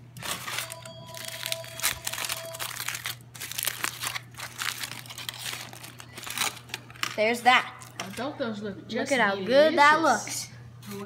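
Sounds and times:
aluminium foil crinkling: 0.2 - 8.2.

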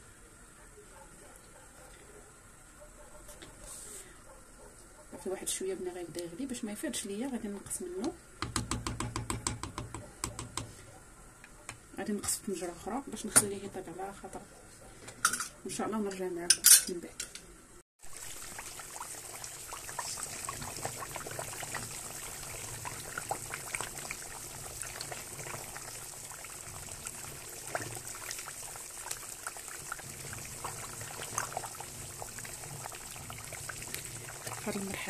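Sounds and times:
pot boiling hard: 18.0 - 35.0.

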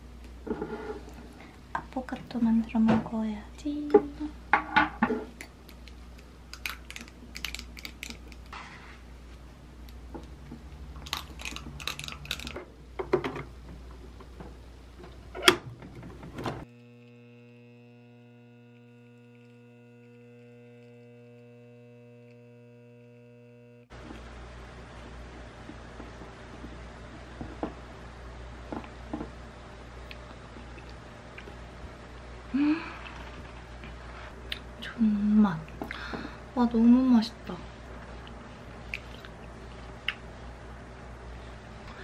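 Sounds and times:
espresso machine pump hum: 16.4 - 26.8.

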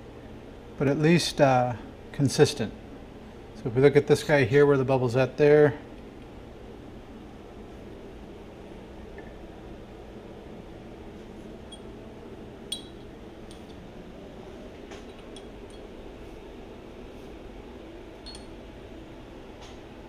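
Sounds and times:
low shop hum: 0.0 - 20.0
metallic clicks and clinks: 12.7 - 13.8, 15.0 - 15.9, 18.2 - 18.5.

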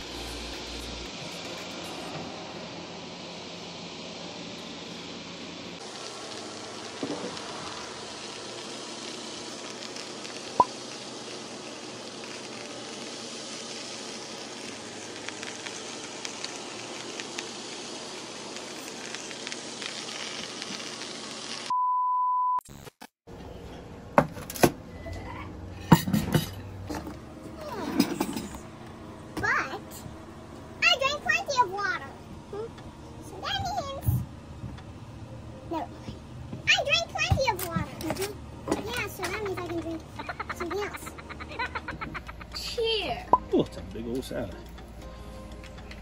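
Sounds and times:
chicken sizzling on a grill: 0.0 - 21.7, 26.8 - 45.6
dishes clinking on a table: 25.9 - 27.0.

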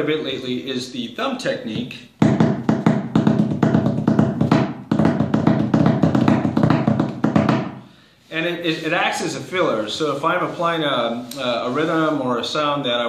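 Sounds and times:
cajon thumb strokes: 1.7 - 7.8.

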